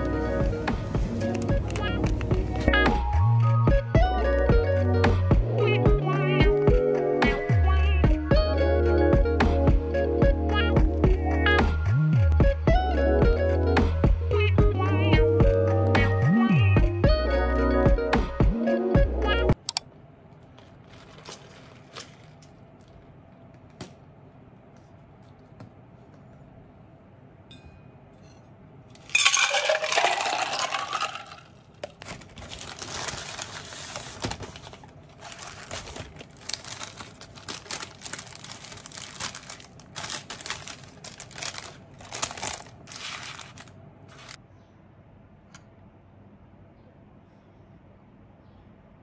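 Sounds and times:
paper bag and wrapper rustling: 0:20.4 - 0:23.2, 0:29.0 - 0:44.4.

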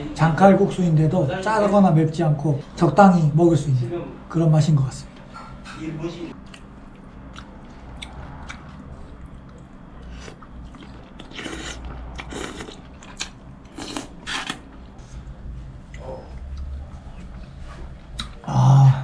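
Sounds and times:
person chewing noodles: 0:06.3 - 0:14.6, 0:18.1 - 0:18.5.

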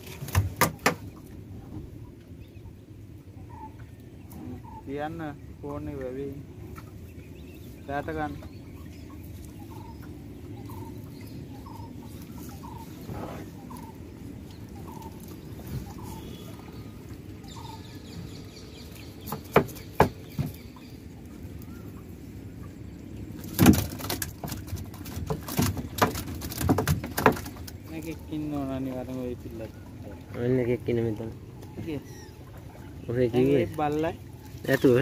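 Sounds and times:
knocks on boat: 0:00.2 - 0:01.1, 0:19.2 - 0:20.8, 0:23.4 - 0:24.6
wet net splashing: 0:23.4 - 0:28.0.

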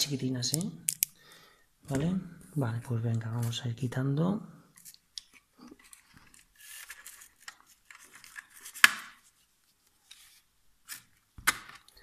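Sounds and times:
plastic packaging rustling: 0:05.6 - 0:09.3.

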